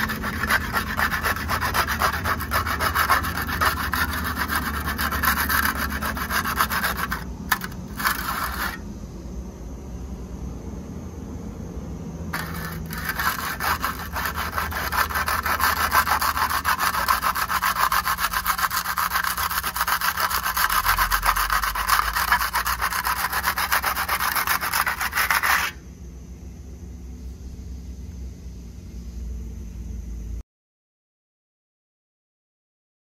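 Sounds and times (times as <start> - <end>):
hand trowel scraping mortar: 0.0 - 8.8, 12.4 - 25.8.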